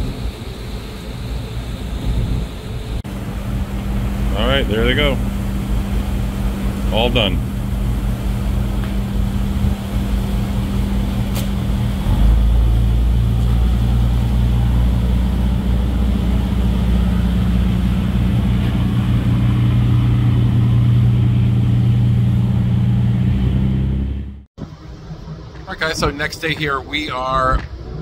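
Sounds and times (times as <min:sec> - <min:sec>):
ship engines droning: 0:00.0 - 0:28.0.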